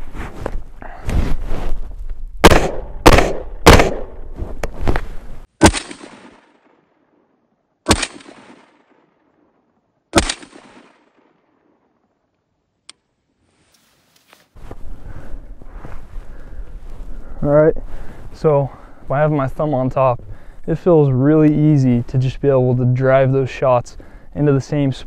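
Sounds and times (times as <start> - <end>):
rifle shots with echo: 2.4 - 4.2, 5.6 - 6.8, 7.8 - 9.2, 10.1 - 11.6.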